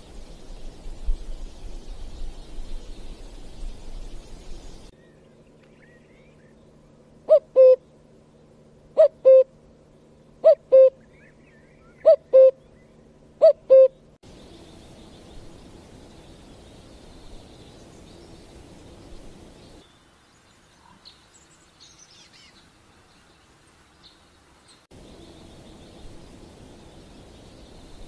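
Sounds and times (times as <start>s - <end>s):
cuckoo calling: 7.3s - 7.8s, 9.0s - 9.5s, 10.4s - 14.0s.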